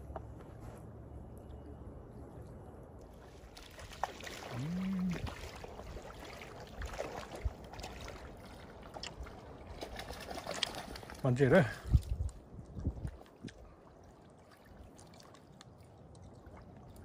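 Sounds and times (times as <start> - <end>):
water splashing at shoreline: 3.0 - 17.0
fish thrashing in water: 3.2 - 11.2.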